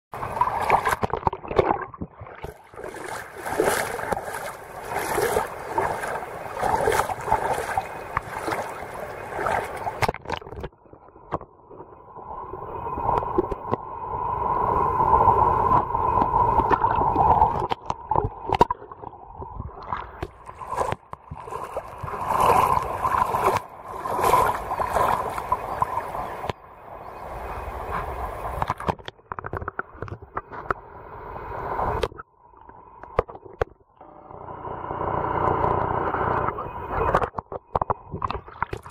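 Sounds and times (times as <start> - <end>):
seawater sloshing and gurgling: 0.1 - 11.5, 15.7 - 30.7, 36.6 - 38.9.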